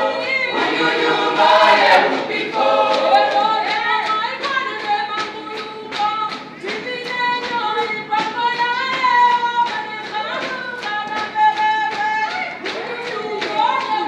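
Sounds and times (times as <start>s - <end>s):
choir singing unaccompanied: 0.0s - 4.1s
sharp strikes keeping a beat: 0.0s - 14.0s.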